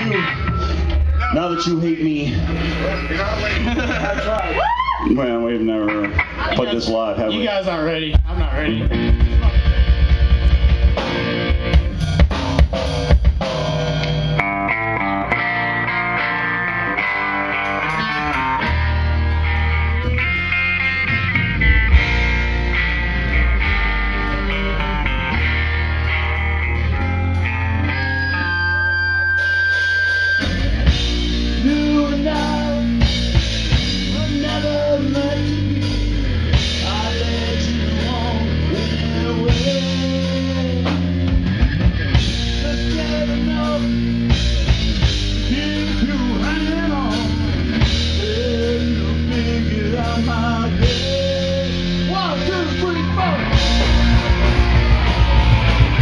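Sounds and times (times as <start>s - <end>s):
electric guitar playing: 0.0s - 56.0s
punk rock band playing live: 0.0s - 56.0s
man singing: 31.2s - 41.4s, 42.3s - 44.2s, 45.2s - 53.9s.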